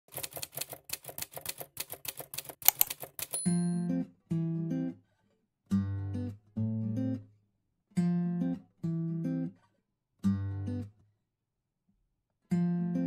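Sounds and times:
typing clicks: 0:00.1 - 0:03.5.

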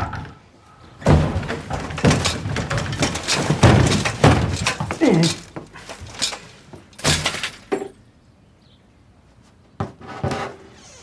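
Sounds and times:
bicycle banging against walls: 0:01.0 - 0:08.0.

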